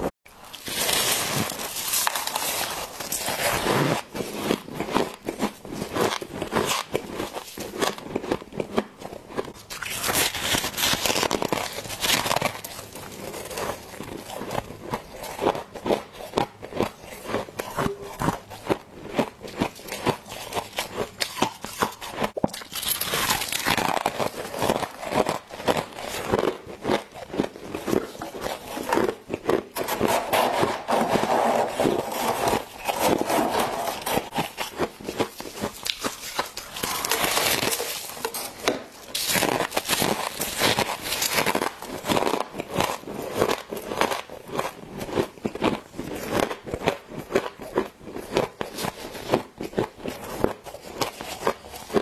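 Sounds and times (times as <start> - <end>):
crunchy frost chewing: 0.4 - 30.1, 31.7 - 52.0
gloved hands scraping frost: 29.8 - 34.5.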